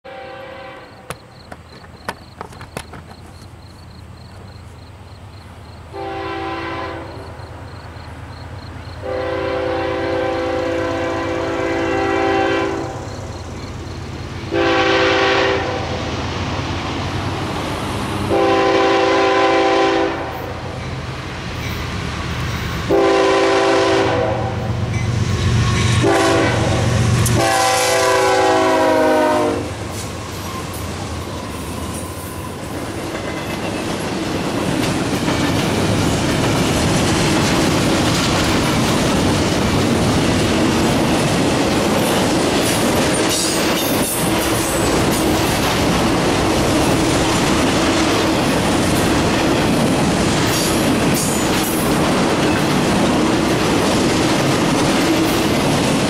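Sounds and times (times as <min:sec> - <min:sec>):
locomotive air horn blasts: 0:00.0 - 0:01.1, 0:05.9 - 0:07.2, 0:09.0 - 0:13.0, 0:14.5 - 0:16.0, 0:18.3 - 0:20.5, 0:22.9 - 0:24.7, 0:26.0 - 0:29.8.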